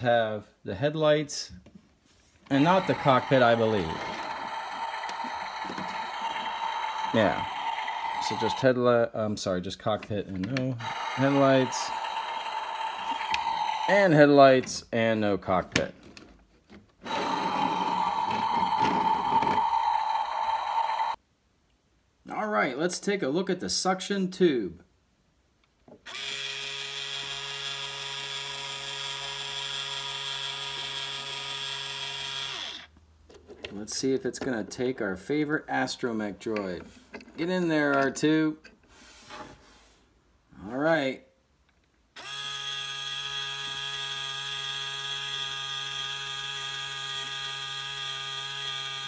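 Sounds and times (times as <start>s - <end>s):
toy motor whining: 2.5s - 8.8s, 10.8s - 14.2s, 17.0s - 21.2s, 26.0s - 32.9s, 42.2s - 49.0s.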